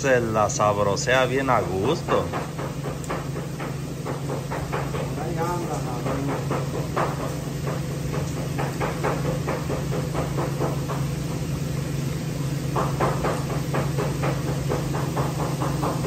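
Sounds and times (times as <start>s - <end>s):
rapid chopping strokes: 12.8s - 16.0s.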